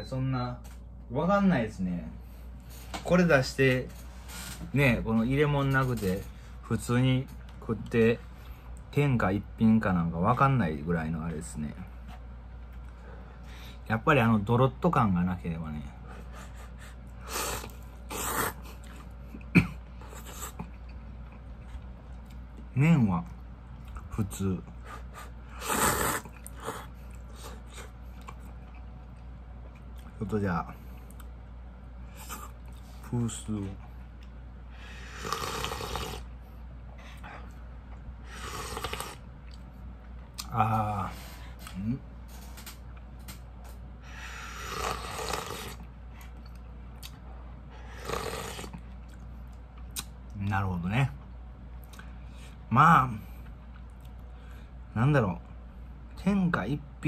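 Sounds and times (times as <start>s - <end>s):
person slurping noodles: 17.2s - 18.6s, 25.5s - 26.9s, 34.9s - 36.3s, 38.3s - 39.2s, 44.2s - 45.8s, 47.8s - 48.8s.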